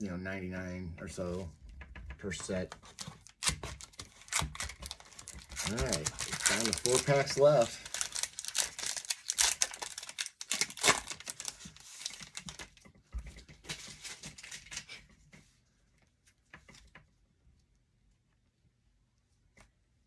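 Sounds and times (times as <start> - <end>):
foil wrapper tearing and crinkling: 3.2 - 12.8.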